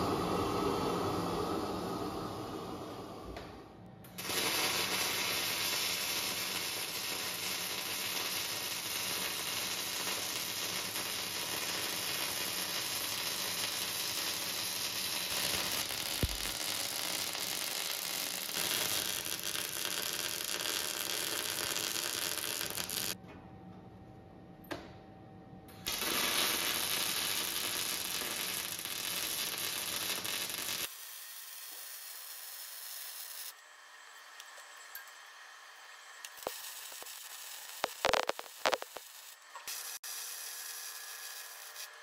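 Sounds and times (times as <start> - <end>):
arc welding crackle: 4.1 - 23.2, 25.8 - 34.6, 36.2 - 42.0.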